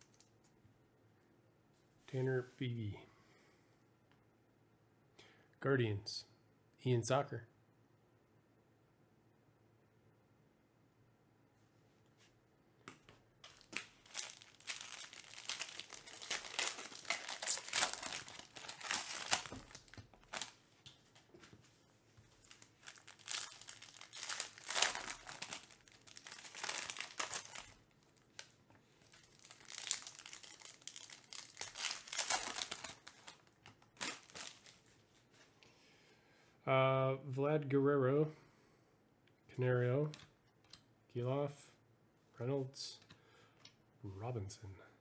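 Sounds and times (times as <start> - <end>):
foil wrappers crinkling and tearing: 13.4 - 20.6, 22.3 - 34.9.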